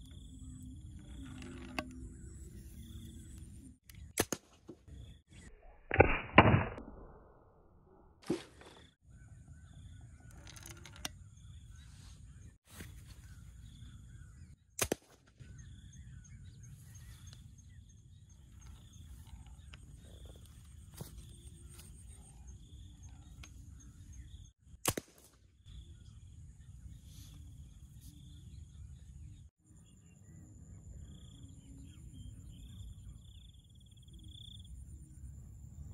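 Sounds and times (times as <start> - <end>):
pipe launcher firing cracks: 5.9 - 7.0, 14.8 - 15.2.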